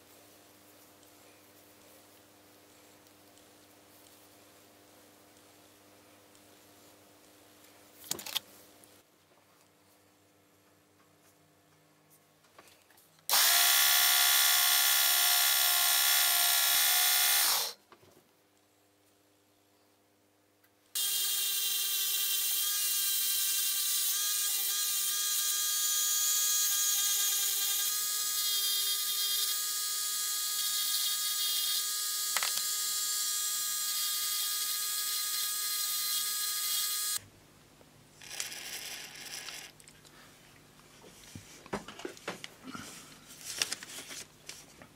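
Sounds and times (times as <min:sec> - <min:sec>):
rotary tool whining: 0:13.3 - 0:17.8, 0:21.0 - 0:37.2, 0:38.2 - 0:39.8.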